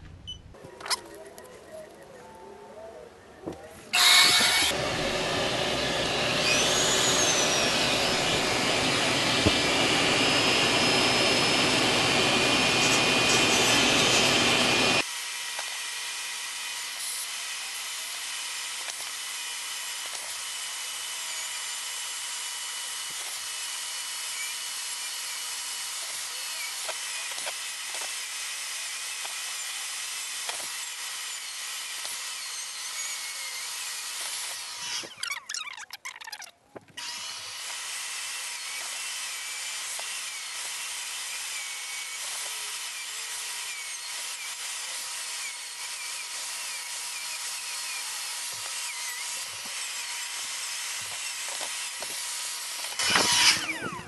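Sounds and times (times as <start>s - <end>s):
vacuum running: 4.0s - 15.0s
rotary tool grinding fiberglass: 4.0s - 36.1s, 37.0s - 54.0s.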